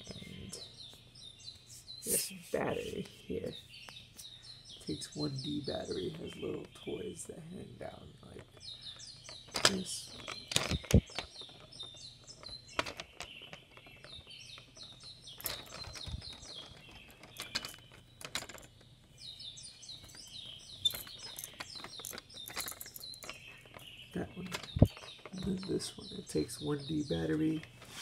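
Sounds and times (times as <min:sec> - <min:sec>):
plastic toys clacking: 0:08.2 - 0:18.9, 0:19.9 - 0:27.9.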